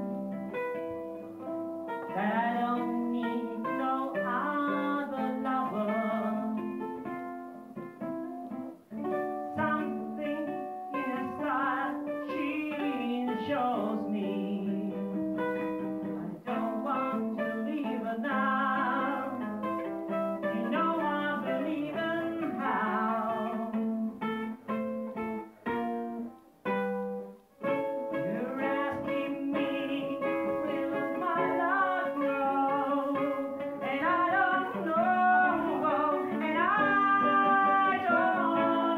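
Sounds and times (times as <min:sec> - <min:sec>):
ukulele: 0:00.0 - 0:38.9
man singing: 0:28.2 - 0:38.9.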